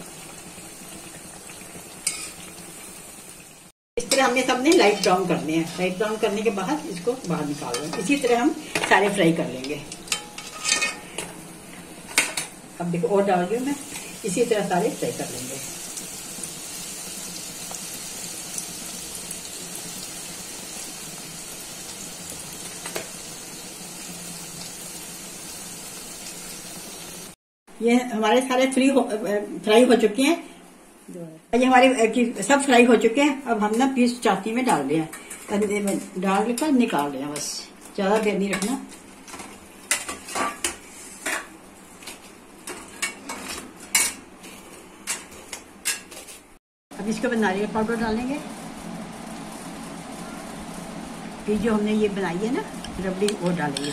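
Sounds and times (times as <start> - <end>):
oil sizzling and bubbling: 0.0 - 27.4, 32.6 - 53.9
metal spoon clinking against steel bowl: 53.4 - 53.9.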